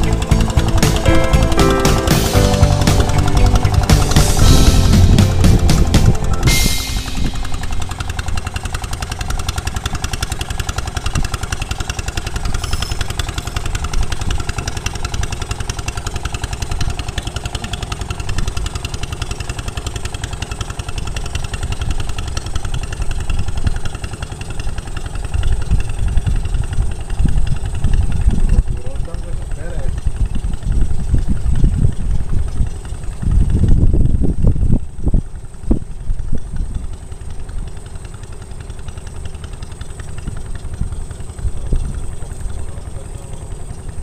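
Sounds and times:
boat engine chugging: 0.0 - 44.0.

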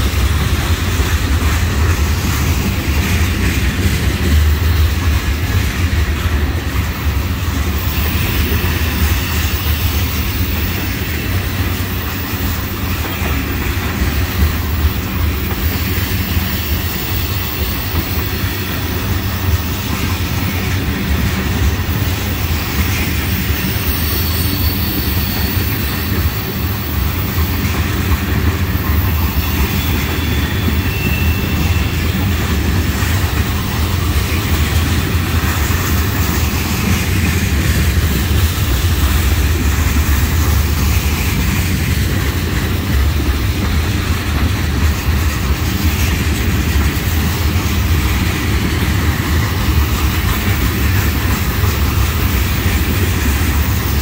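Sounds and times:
train wheels rumbling on rail: 0.0 - 54.0
faint wheel squeals: 29.0 - 32.2.

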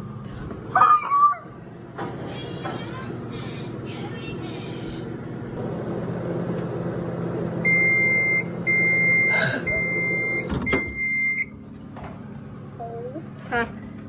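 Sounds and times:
microwave oven humming: 0.0 - 14.0
microwave alarm beeps: 7.6 - 11.6.

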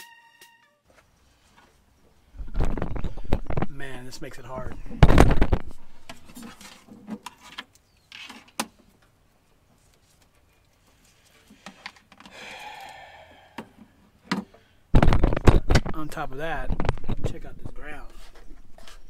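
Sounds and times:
cables clicking and rustling: 2.4 - 12.4.

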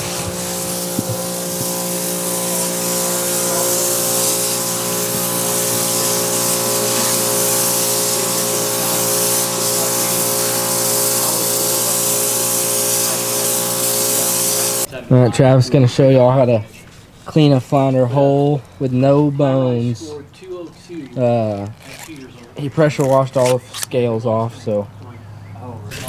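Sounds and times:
pressure washer motor humming: 0.0 - 14.9
water jet hissing: 0.0 - 14.9.

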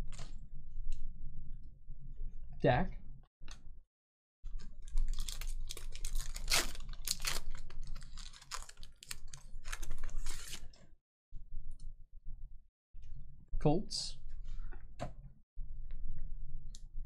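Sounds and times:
foil wrapper tearing and crinkling: 4.7 - 10.7.

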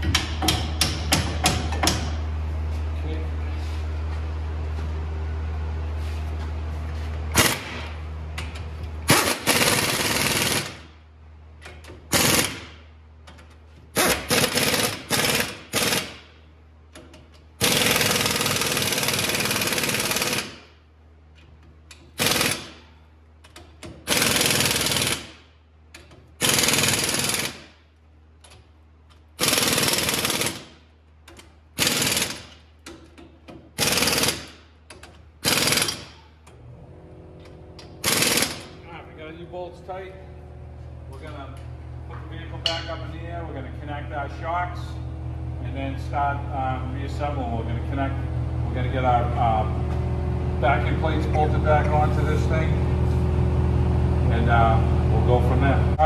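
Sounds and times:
impact wrench bursts: 7.3 - 8.0, 9.1 - 10.9, 11.9 - 12.8, 13.9 - 16.4, 17.6 - 20.8, 21.9 - 22.9, 23.5 - 27.8, 29.4 - 36.4, 37.8 - 38.8.

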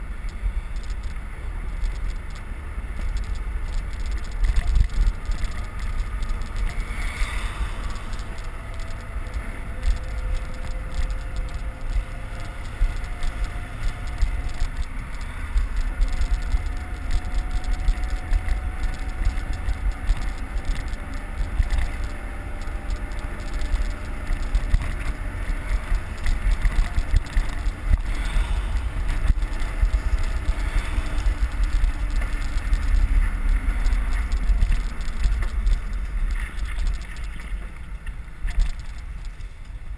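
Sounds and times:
faint traffic engines: 0.0 - 39.9
tyre and road noise: 0.0 - 39.9
wind buffeting microphone: 0.0 - 39.9.

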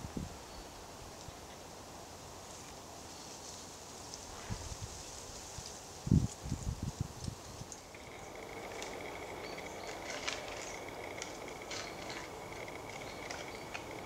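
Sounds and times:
woodland background: 0.0 - 14.0
faint continuous high note: 7.9 - 14.0
antlers scraping on bark: 8.0 - 14.0.

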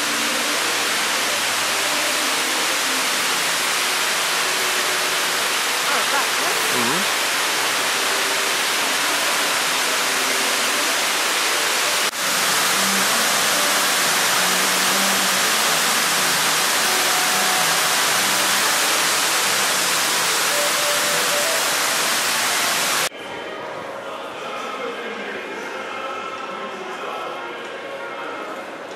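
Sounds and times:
waterfall rushing into pool: 0.0 - 23.1.

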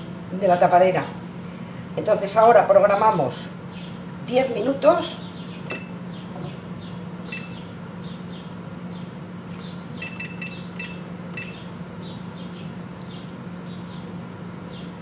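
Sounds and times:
steady low hum: 0.0 - 15.0
appliance control panel beeping: 5.6 - 6.0, 7.2 - 7.8, 9.6 - 11.8.

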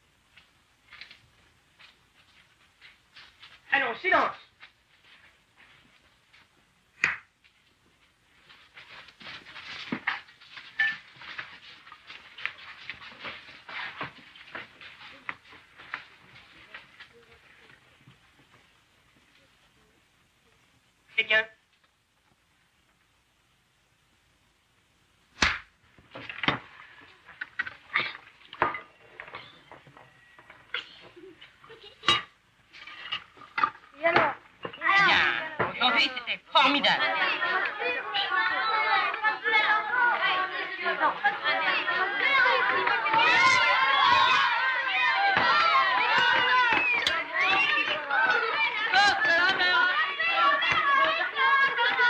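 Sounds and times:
crowd scrambling over wooden benches: 8.4 - 18.6, 37.0 - 52.0
sharp knock: 25.4 - 25.7
dishes and cutlery clinking: 32.0 - 33.8.

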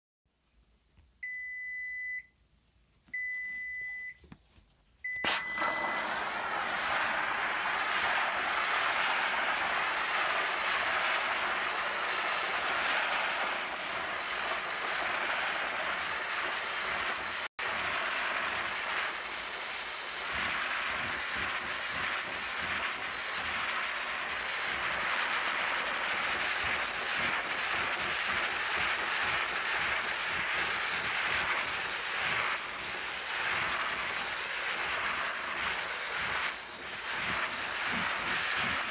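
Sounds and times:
steam cleaner hissing: 5.3 - 38.9.

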